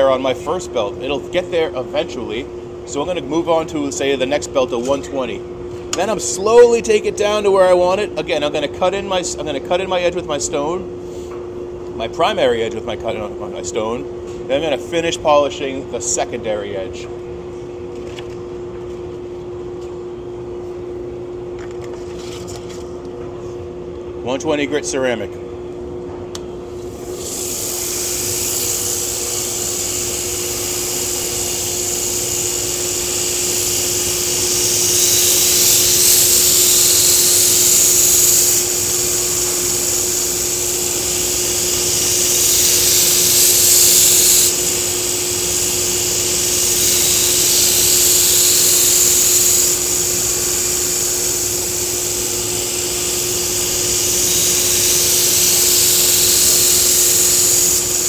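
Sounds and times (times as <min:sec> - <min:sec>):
blade grinding hiss: 0:26.9 - 0:58.0
belt grinder humming: 0:27.2 - 0:58.0.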